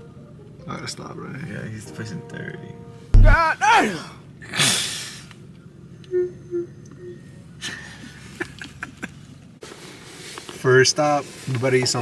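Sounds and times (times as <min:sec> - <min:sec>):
man laughing breathily: 0:07.6 - 0:09.2.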